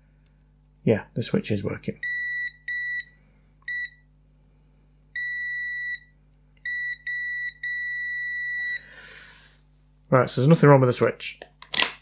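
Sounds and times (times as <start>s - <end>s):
multimeter continuity beeps: 2.0s - 4.1s, 5.2s - 8.8s.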